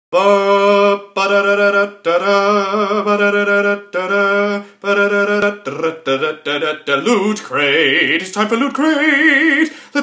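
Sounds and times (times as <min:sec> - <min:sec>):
man singing long notes: 0:00.1 - 0:10.0.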